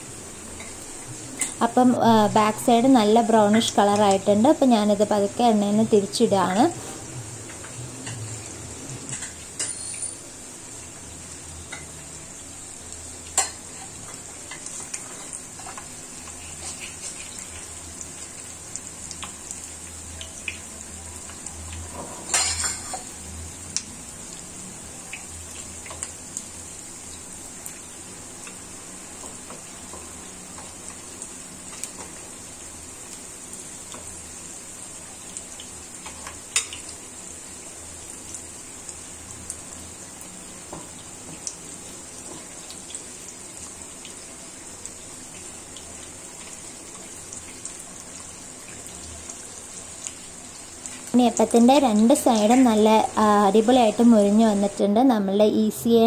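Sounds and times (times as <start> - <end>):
batter deep-frying in hot oil: 0.0 - 56.0
metal spoon clinking on pan: 9.6 - 10.2.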